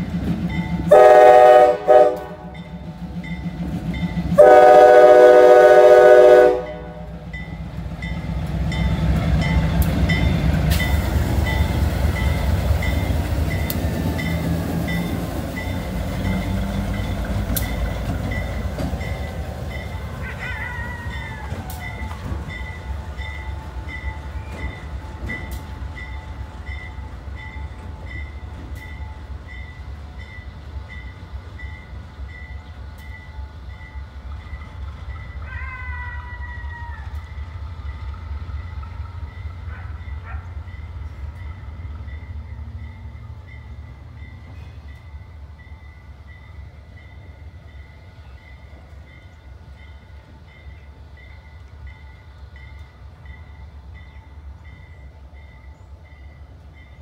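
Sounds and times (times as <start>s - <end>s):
diesel locomotive engine rumble: 0.0s - 57.0s
locomotive bell ringing: 2.4s - 4.5s, 6.6s - 35.9s, 37.8s - 57.0s.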